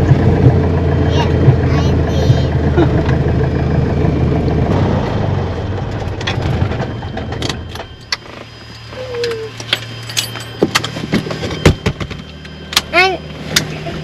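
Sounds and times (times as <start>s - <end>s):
aircraft engine idling: 0.0s - 14.0s
low hum: 0.0s - 14.0s.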